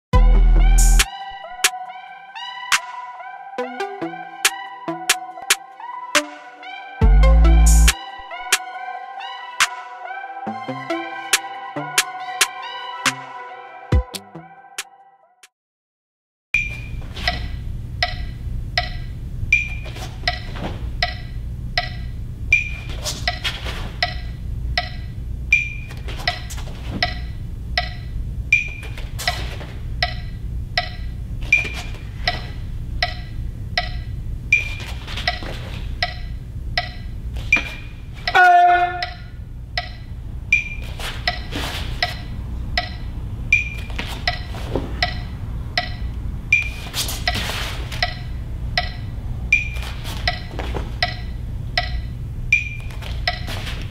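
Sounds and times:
background music with clicking beat: 0.2s - 2.0s, 2.6s - 8.8s, 10.5s - 13.3s, 13.9s - 15.5s, 16.6s - 53.9s
low steady hum: 16.6s - 53.9s.

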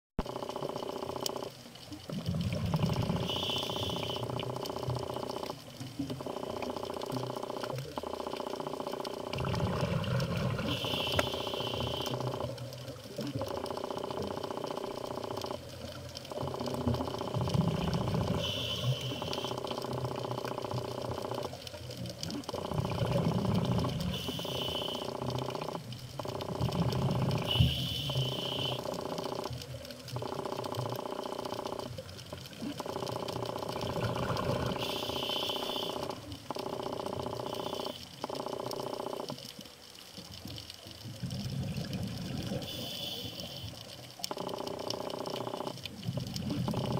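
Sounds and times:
steady hum: 2.5s - 39.4s
regulator hiss: 3.0s - 4.5s, 10.5s - 12.4s, 18.1s - 20.0s, 23.7s - 25.7s, 27.0s - 29.0s, 34.7s - 38.2s, 42.5s - 43.8s
diver exhaling bubbles: 9.3s - 12.3s, 22.5s - 25.2s, 33.7s - 36.1s.

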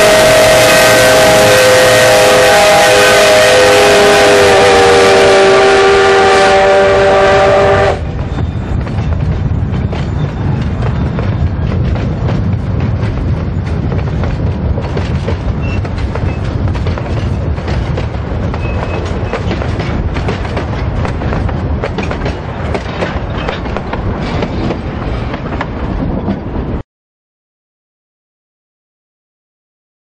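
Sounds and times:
train wheels clicking over rails: 6.1s - 26.8s
wheels squealing: 8.0s - 11.9s, 15.5s - 20.1s.

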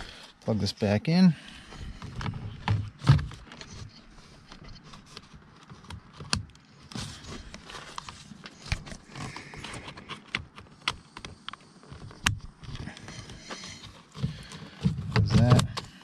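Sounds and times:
plastic and metal parts knocking: 8.6s - 16.0s.

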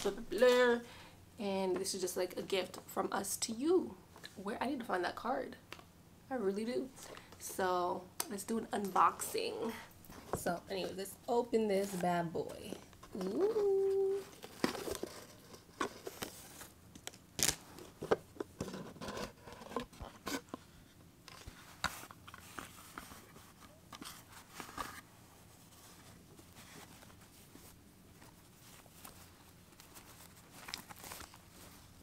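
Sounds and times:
cardboard box rustling: 14.2s - 16.7s.

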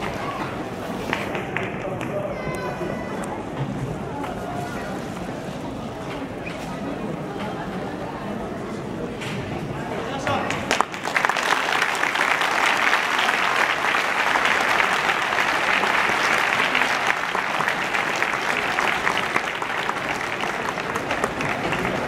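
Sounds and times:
audience applauding: 10.5s - 22.0s.

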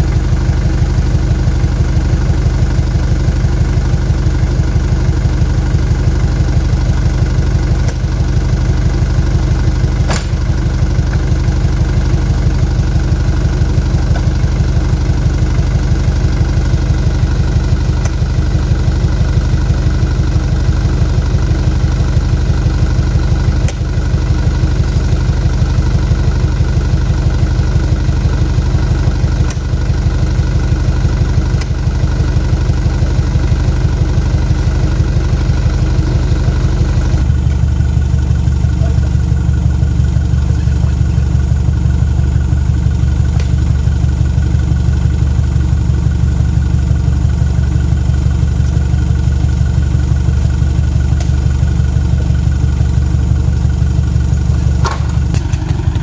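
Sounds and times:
lorry engine idling: 0.0s - 56.0s
sharp knocks: 10.0s - 10.6s.

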